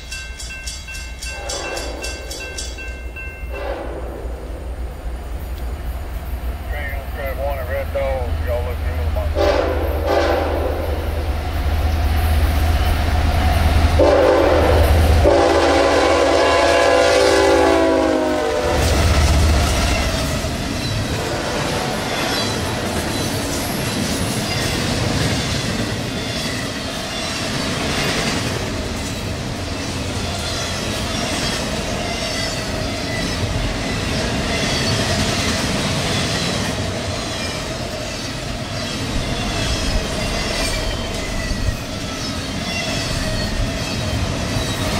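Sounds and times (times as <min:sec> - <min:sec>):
diesel locomotive engines: 0:00.0 - 0:44.9
multi-note air horn: 0:09.3 - 0:11.0, 0:14.0 - 0:19.0.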